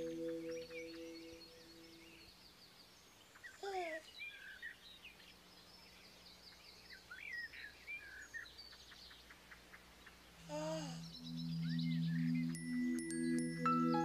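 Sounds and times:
birds chirping: 0.0 - 14.0
baby cooing: 10.4 - 11.1.

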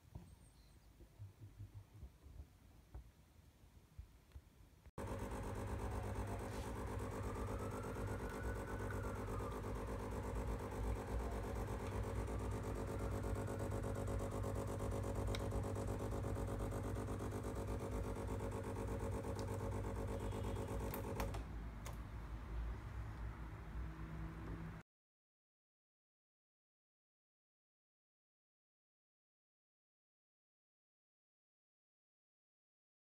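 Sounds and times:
espresso machine pump humming: 5.0 - 22.0
machine clicks: 5.0 - 22.0.

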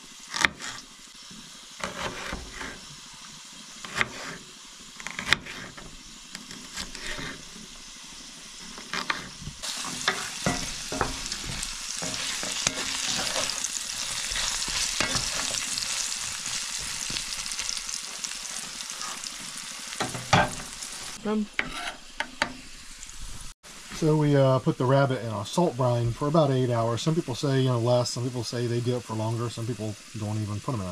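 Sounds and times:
food sizzling in a skillet: 0.0 - 30.9
wooden spatula scraping a pan: 0.3 - 2.9, 3.8 - 7.7, 8.6 - 22.5
knife on wooden cutting board: 1.8 - 2.8, 5.0 - 7.5, 21.6 - 22.0.

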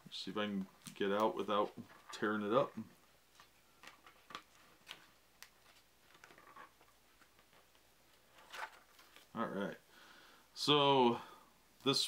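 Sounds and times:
paper booklet rustling: 3.3 - 9.4.

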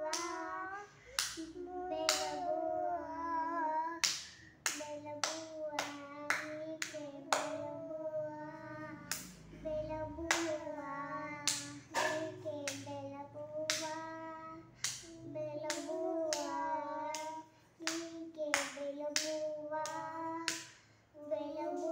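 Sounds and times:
hands clapping: 0.0 - 0.5, 1.2 - 2.5, 4.0 - 7.7, 9.0 - 9.4, 13.6 - 14.0, 14.8 - 20.8
child singing: 0.0 - 21.9.

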